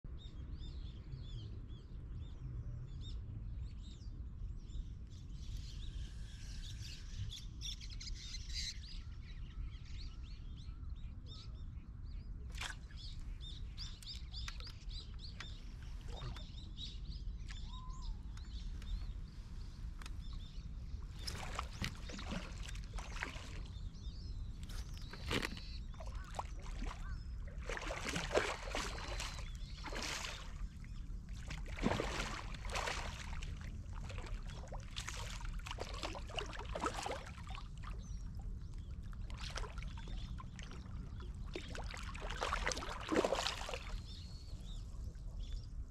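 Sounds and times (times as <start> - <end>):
small birds chirping: 11.3 - 45.9
splashing in water: 21.1 - 23.9, 24.6 - 38.2, 39.1 - 44.2.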